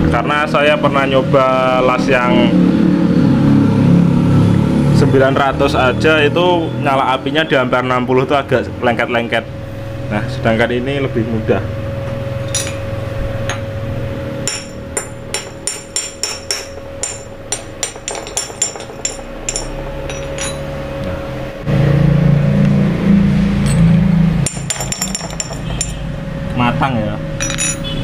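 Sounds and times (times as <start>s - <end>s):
tool tapping on metal: 14.4s - 20.7s, 24.4s - 26.0s, 27.4s - 27.9s.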